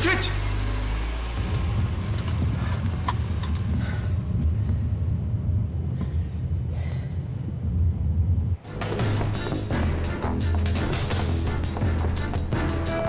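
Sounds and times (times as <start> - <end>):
low steady motor rumble: 0.0 - 7.2.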